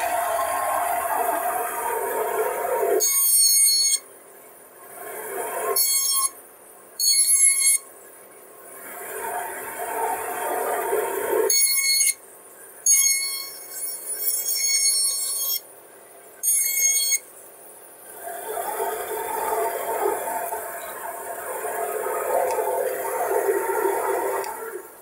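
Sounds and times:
bandsaw squealing: 12.9 - 15.6.

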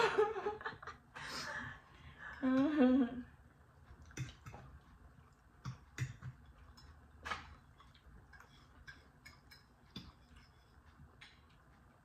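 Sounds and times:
cutlery scraping plates: 8.3 - 10.8.

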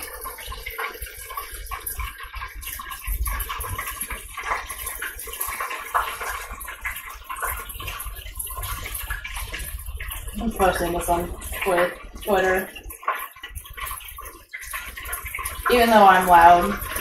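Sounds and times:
chicken frying in deep fryer: 0.0 - 17.0.

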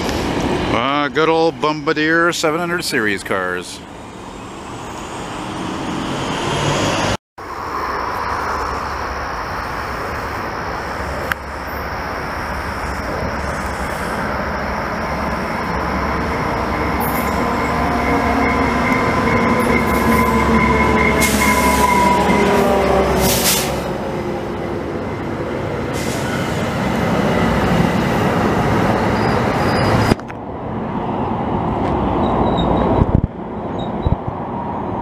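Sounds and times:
train rumble passing: 0.0 - 35.0
locomotive whining tones: 8.0 - 30.3.

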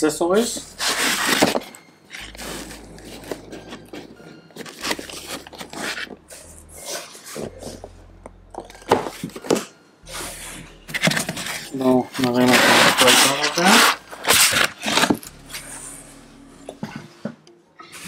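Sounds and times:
cardboard box rustling and scraping: 0.5 - 7.9, 8.9 - 15.2.

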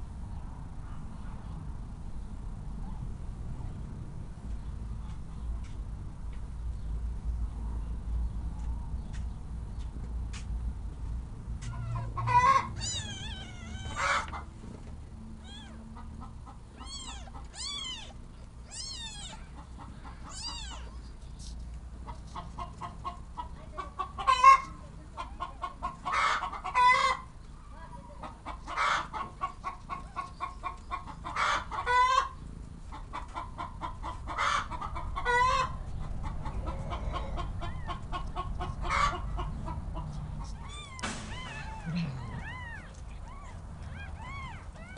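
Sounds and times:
kittens mewing: 11.6 - 14.5, 15.4 - 21.2, 36.3 - 39.6, 40.3 - 44.9.

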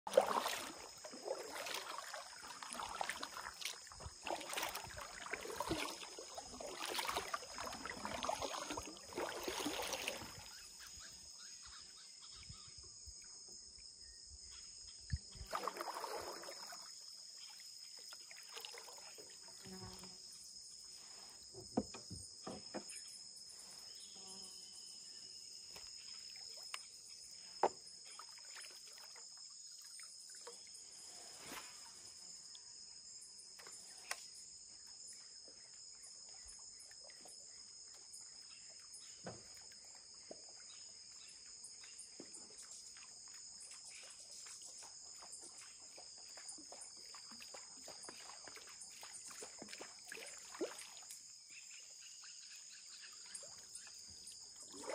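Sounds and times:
paddle strokes splashing: 0.1 - 11.0, 15.4 - 16.9, 43.9 - 51.2
insects droning: 0.1 - 54.9.

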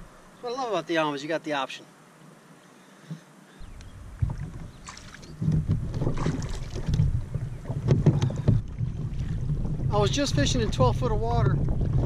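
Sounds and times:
wind rumbling on microphone: 3.6 - 12.0
water splashing: 4.0 - 12.0.

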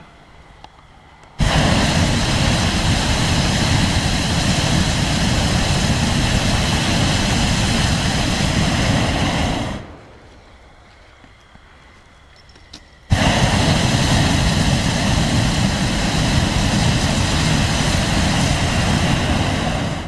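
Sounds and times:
propane burner blast: 1.4 - 10.3, 13.0 - 20.0.

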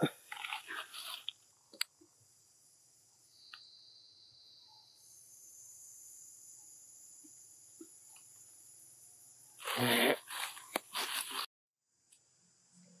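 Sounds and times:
lower-pitched insect buzzing: 2.2 - 11.5
high-pitched insect buzzing: 3.3 - 11.5.

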